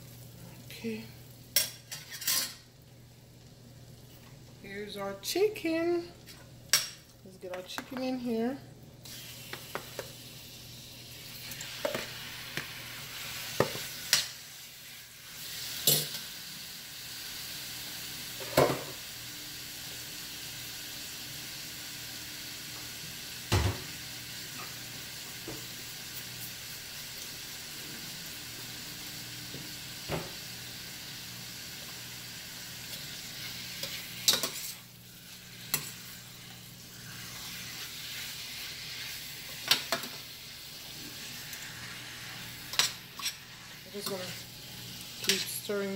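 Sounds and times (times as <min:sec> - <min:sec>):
chicken sizzling in a pot: 0:00.0 - 0:45.9.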